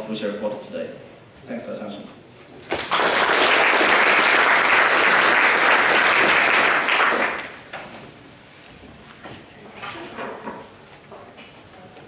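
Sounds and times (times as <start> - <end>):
audience applauding: 2.7 - 7.7.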